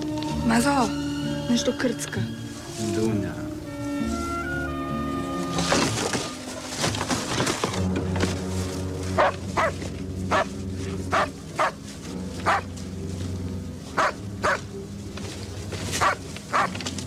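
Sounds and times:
dog barking: 9.2s - 10.5s, 11.1s - 11.8s, 12.4s - 12.7s, 14.0s - 14.6s, 16.0s - 16.8s.

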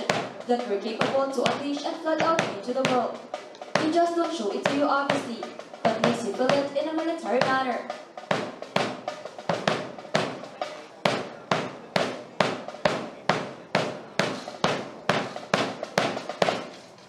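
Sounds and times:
snare-like drum beat: 0.0s - 17.0s.

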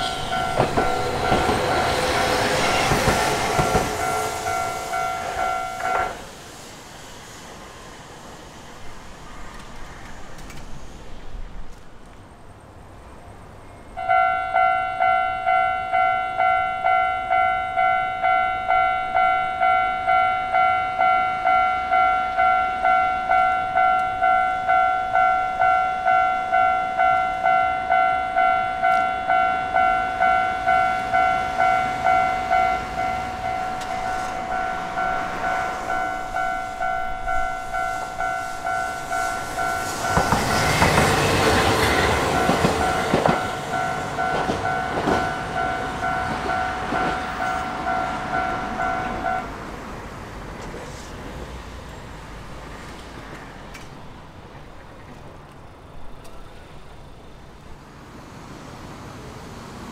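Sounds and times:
level-crossing bell ringing: 0.0s - 2.4s, 3.7s - 6.1s, 14.0s - 40.3s, 42.1s - 49.5s
tram running noise: 0.0s - 59.9s
scattered tram clicks: 0.4s - 4.2s, 9.5s - 10.8s, 11.6s - 12.3s, 21.9s - 35.2s, 39.2s - 49.7s, 50.4s - 57.7s.

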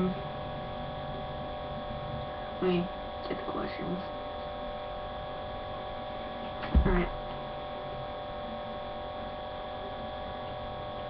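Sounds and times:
steady electrical hum: 0.0s - 11.0s
sharp thump: 6.6s - 7.2s.

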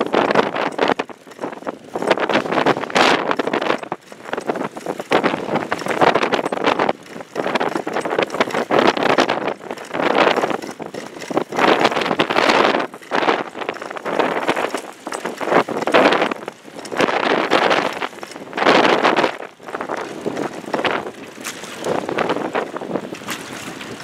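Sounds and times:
gusty wind buffeting microphone: 0.0s - 24.0s.

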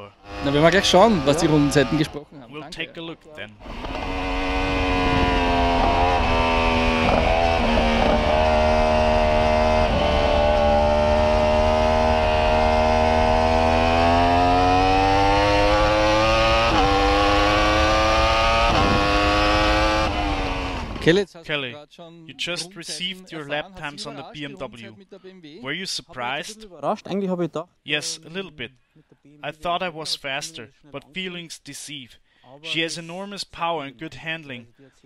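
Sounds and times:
motorcycle engine revving high: 0.0s - 2.2s, 3.6s - 21.1s.

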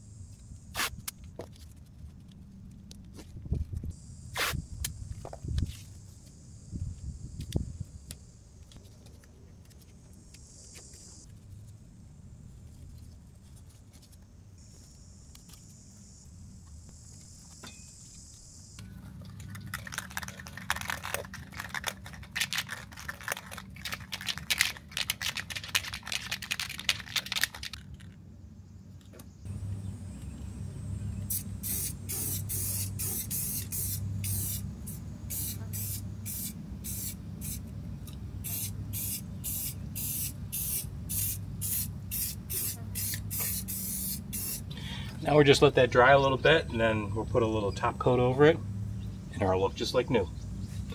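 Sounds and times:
spray can hissing bursts: 0.7s - 1.0s, 4.4s - 4.6s, 31.3s - 37.6s, 38.4s - 44.7s
aerosol can rattling: 19.2s - 28.1s, 38.4s - 44.6s.

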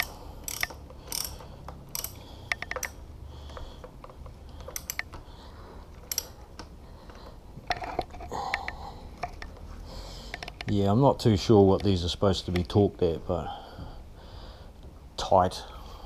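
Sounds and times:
socket ratchet clicking: 0.0s - 5.2s, 5.9s - 6.8s, 10.3s - 10.8s.

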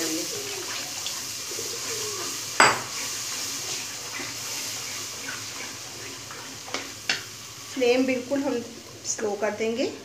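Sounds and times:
wooden spatula scraping wok: 0.0s - 9.3s
milk sizzling and bubbling: 0.0s - 10.0s.

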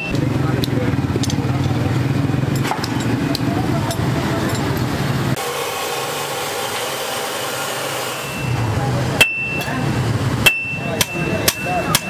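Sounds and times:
anvil ringing: 8.2s - 12.0s
hammer striking metal on anvil: 9.2s - 9.8s, 10.4s - 12.0s.

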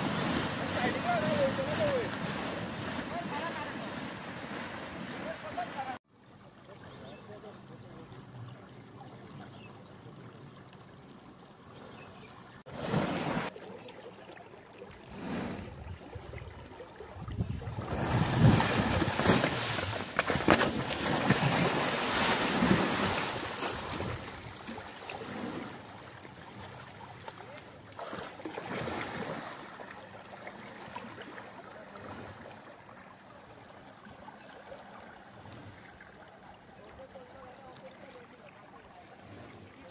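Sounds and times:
flowing water rushing: 0.0s - 39.9s
animal splashing in water: 17.8s - 25.8s.

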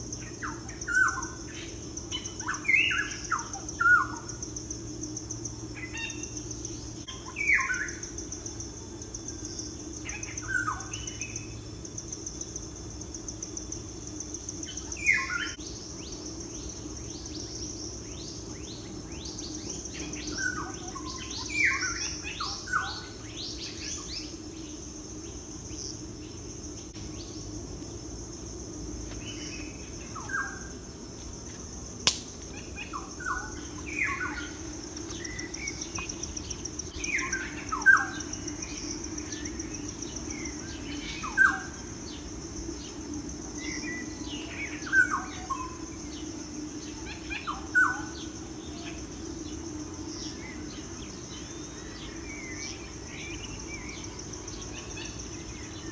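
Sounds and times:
high insect chorus: 0.0s - 55.9s
sharp click: 32.0s - 32.4s.

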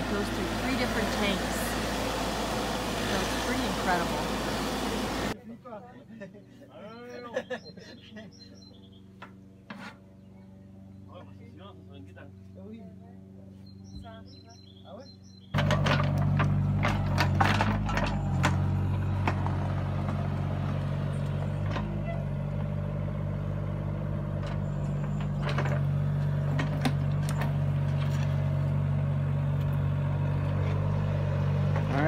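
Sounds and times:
excavator diesel engine running: 0.0s - 5.4s, 15.6s - 32.0s.

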